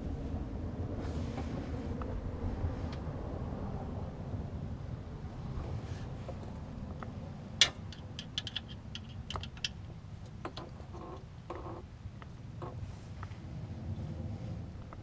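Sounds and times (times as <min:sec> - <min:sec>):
hand tool clicking on bolts: 0:07.6 - 0:09.8.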